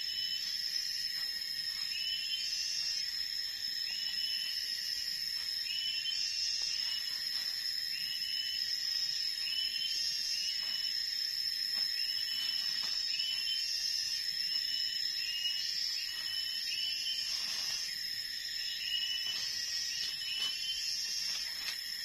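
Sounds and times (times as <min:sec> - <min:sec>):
insects droning: 0:00.0 - 0:22.0
footsteps in leaf litter: 0:19.2 - 0:22.0.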